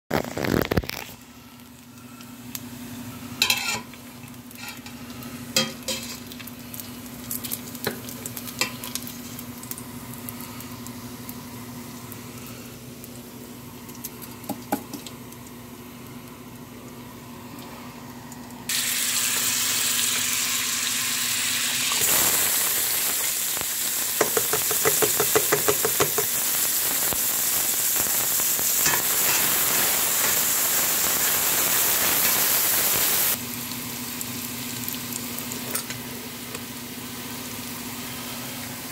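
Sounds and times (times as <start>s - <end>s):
onion sizzling in fat: 0.1s - 38.9s
faint hum: 0.4s - 18.7s.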